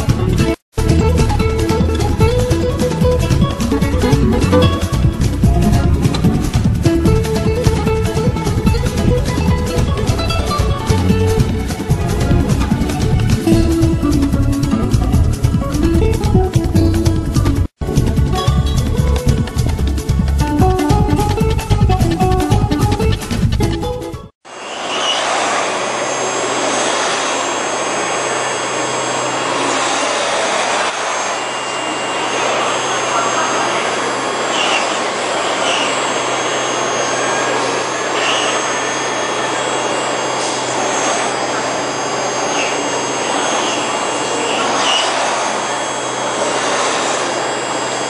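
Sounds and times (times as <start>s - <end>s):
cnc spindle milling: 24.5s - 48.0s.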